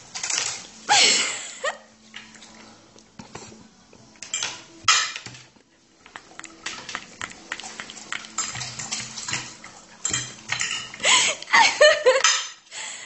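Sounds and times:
cutlery clinking on a plate: 4.2s - 5.5s, 6.1s - 11.0s, 12.1s - 12.6s.

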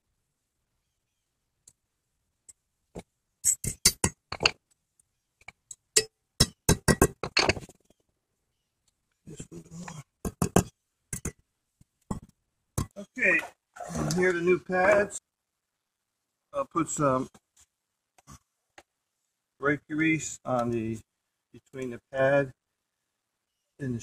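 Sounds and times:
hammer tapping metal: 6.0s - 7.5s.

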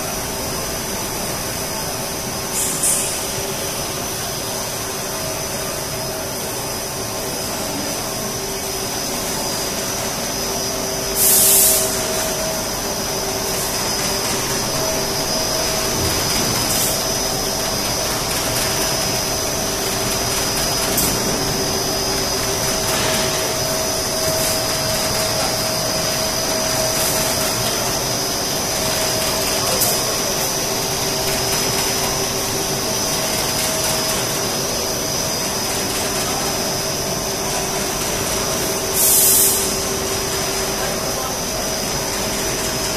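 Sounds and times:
machine blowers rushing air: 0.0s - 42.9s
machine hum: 0.0s - 42.9s
loud hiss: 0.2s - 5.0s, 8.6s - 18.2s, 38.4s - 41.3s.

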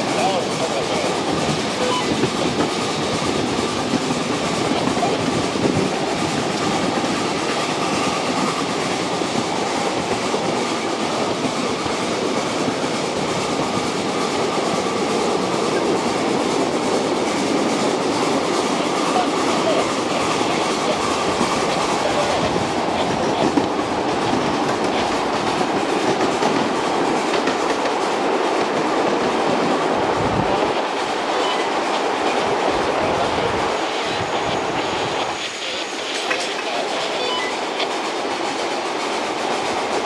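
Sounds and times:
miniature train wheels rumbling on rails: 0.0s - 29.7s.

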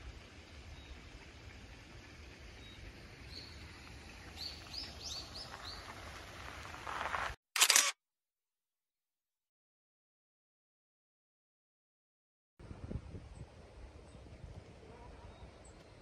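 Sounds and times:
faint outdoor ambience: 0.0s - 7.9s, 12.6s - 16.0s
small birds chirping: 2.5s - 6.0s
camera shutter click: 7.6s - 8.0s.

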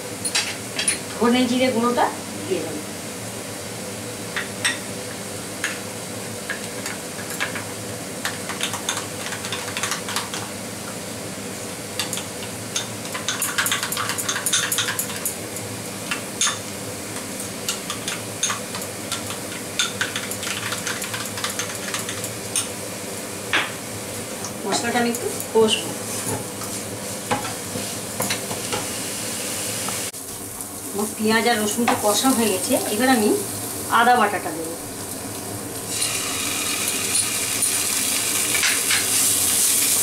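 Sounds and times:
paste sizzling in oil: 34.9s - 40.0s.

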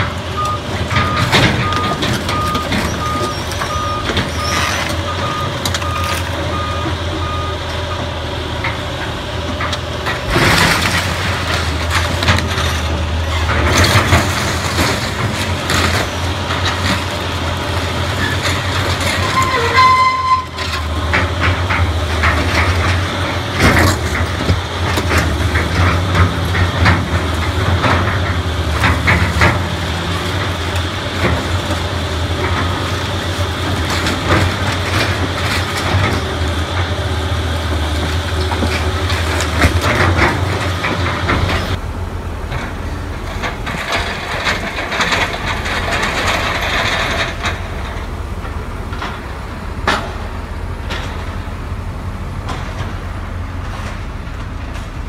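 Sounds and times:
excavator diesel engine running: 0.0s - 55.0s
crashing and scraping of debris: 9.6s - 41.8s, 42.5s - 50.2s.

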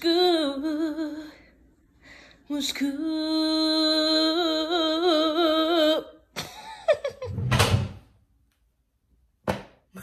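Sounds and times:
woman singing with vibrato: 0.0s - 1.5s, 2.4s - 6.3s.

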